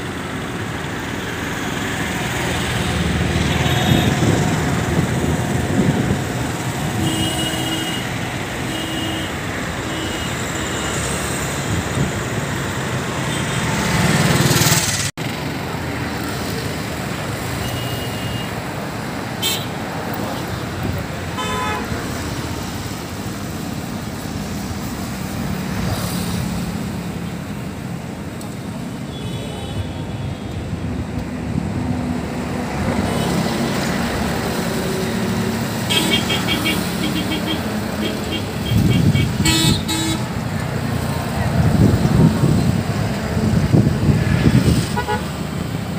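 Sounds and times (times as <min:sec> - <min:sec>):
urban traffic noise: 0:00.0 - 0:45.9
vehicle horn toots: 0:21.4 - 0:21.9, 0:35.9 - 0:40.3, 0:45.0 - 0:45.3.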